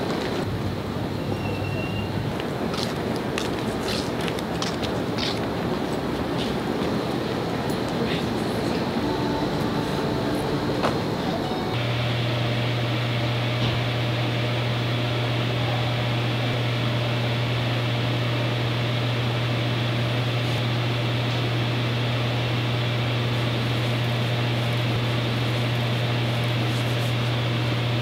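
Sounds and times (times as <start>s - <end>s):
low hum: 8.2s - 28.0s.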